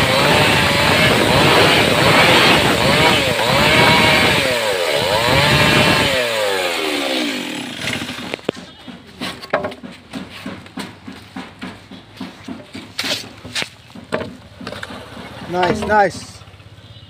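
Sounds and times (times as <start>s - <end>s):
chainsaw cutting timber: 0.0s - 8.7s
soft footsteps: 8.4s - 14.4s.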